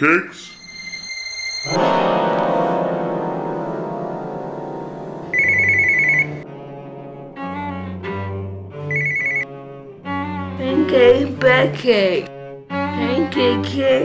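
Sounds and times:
low bowed string music: 1.7s - 14.0s
telephone warbling ring: 5.3s - 6.4s, 8.9s - 9.4s.

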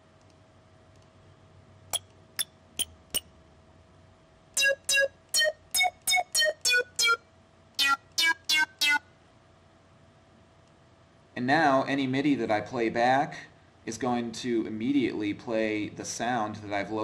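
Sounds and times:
short synth notes: 4.6s - 7.2s.

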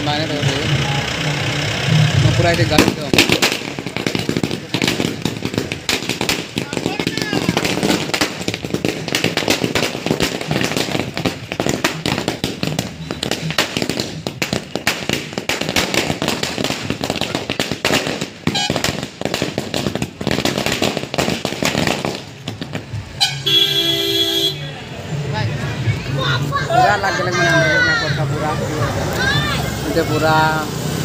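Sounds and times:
firecrackers banging: 0.0s - 31.0s
vehicle horn: 18.5s - 18.8s, 23.2s - 24.7s.

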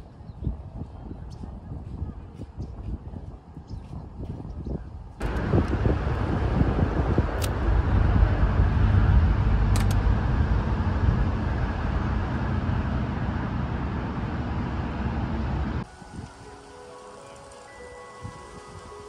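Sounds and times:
road traffic rumble: 5.2s - 15.9s.

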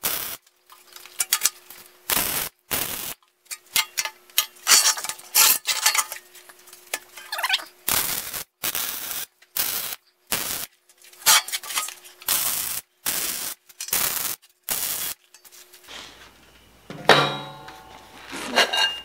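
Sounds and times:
welding arc bursts: 0.0s - 0.4s, 1.2s - 6.2s, 7.0s - 15.2s
metallic clatter: 3.5s - 7.6s, 11.2s - 12.1s.

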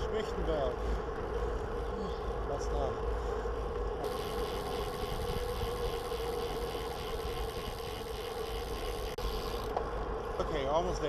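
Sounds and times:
steady hum: 3.2s - 10.4s.

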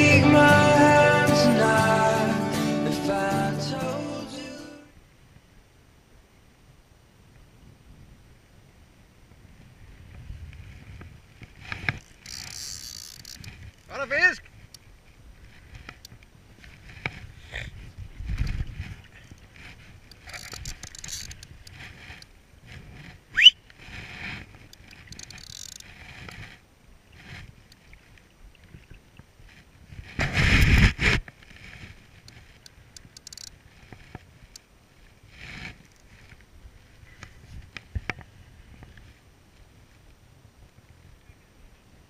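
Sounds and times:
knocks from fishing rod and reel: 10.9s - 14.9s, 18.3s - 23.2s, 24.0s - 26.6s, 29.5s - 34.7s
rising whistle: 23.3s - 23.6s.

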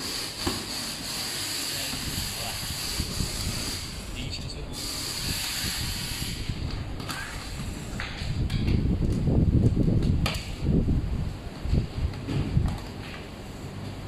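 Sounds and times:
electric screwdriver whirring: 4.8s - 7.8s.

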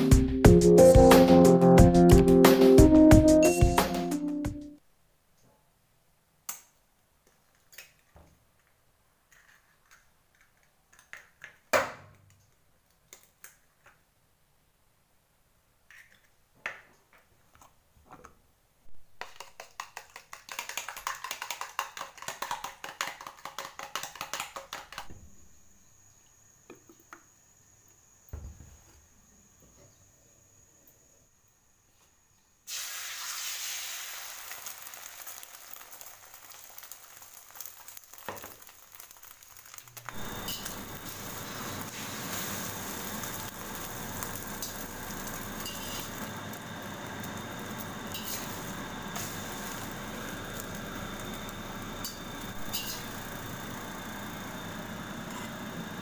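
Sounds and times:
eggs beaten in plastic tub: 19.2s - 25.1s
oil hissing in wok: 32.7s - 56.0s.

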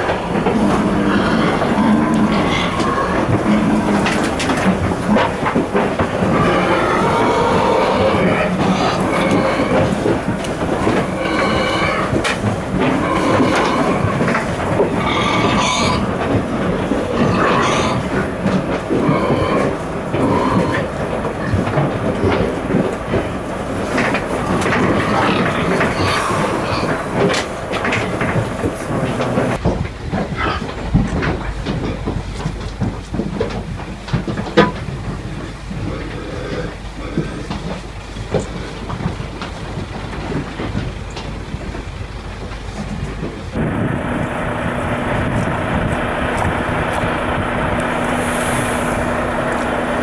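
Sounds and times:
pigs squealing: 0.0s - 29.6s, 30.2s - 31.2s, 35.2s - 39.1s
truck rumble: 0.0s - 50.0s.

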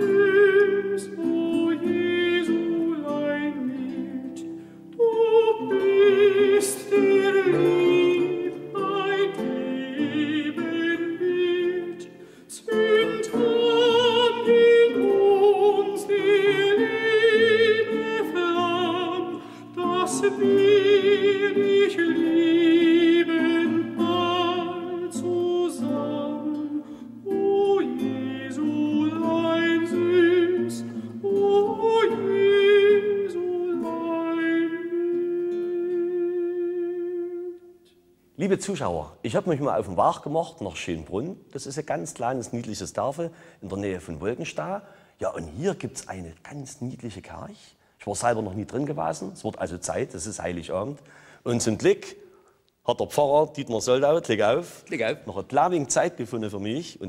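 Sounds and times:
person singing with vibrato: 0.0s - 40.4s.

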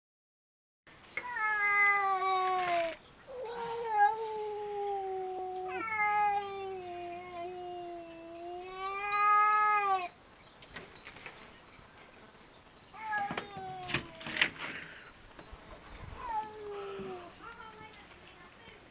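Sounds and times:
cat yowling: 1.2s - 10.2s, 13.0s - 14.3s, 16.2s - 17.2s.

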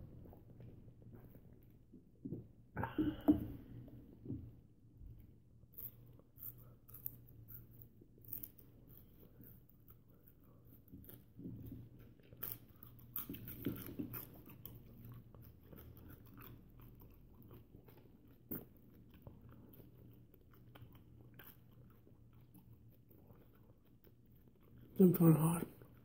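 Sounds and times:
wet chewing: 5.6s - 25.0s.

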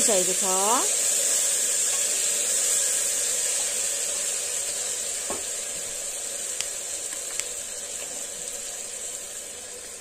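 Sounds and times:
food sizzling in hot oil: 0.0s - 10.0s
knock: 5.3s - 5.5s.

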